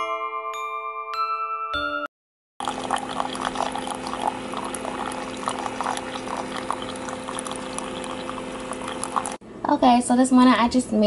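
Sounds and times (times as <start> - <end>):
chiming music: 0.0 - 2.1
coffee maker humming: 2.6 - 9.4
coffee splashing into mug: 2.6 - 9.4.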